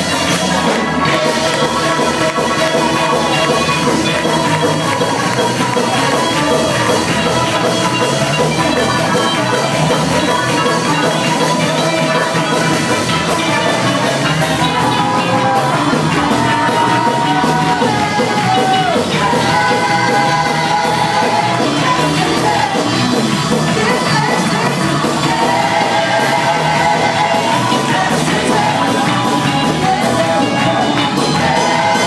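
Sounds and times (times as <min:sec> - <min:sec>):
congregation clapping: 0:00.0 - 0:32.0
singers holding long notes: 0:00.0 - 0:32.0
worship band with keyboard and drums: 0:00.0 - 0:32.0.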